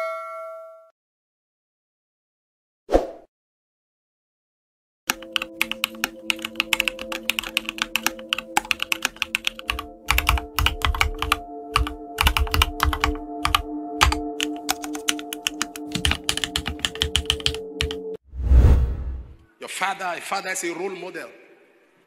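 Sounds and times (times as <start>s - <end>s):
keyboard typing clicks: 5.1s - 18.0s
sustained music chords: 9.8s - 18.2s.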